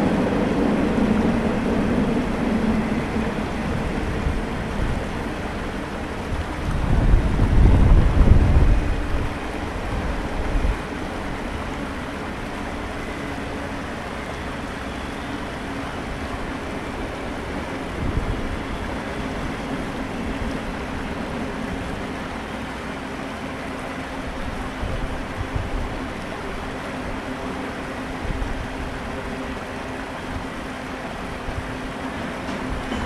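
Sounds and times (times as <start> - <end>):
wind on microphone: 0.0 - 11.7, 17.8 - 20.9
flowing creek water: 0.0 - 33.0
freight train rumbling past: 0.0 - 33.0.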